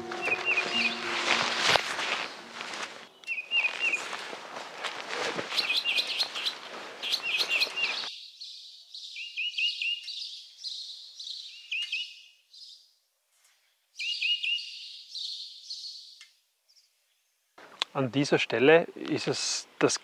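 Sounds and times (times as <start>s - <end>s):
footsteps crunching dry leaves: 0.0s - 8.1s
songbirds chirping: 0.0s - 20.0s.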